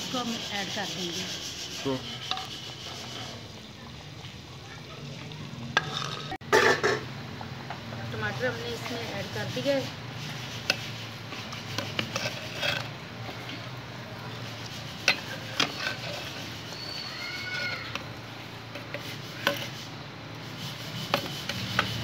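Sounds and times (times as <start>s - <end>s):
ladle scraping a clay pot: 0.0s - 4.4s, 5.2s - 7.1s, 8.1s - 22.0s
animal call: 16.6s - 18.0s.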